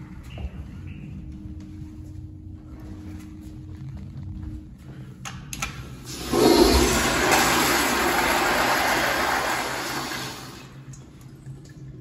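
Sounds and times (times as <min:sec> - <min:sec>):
toilet flushing: 0:06.1 - 0:10.9.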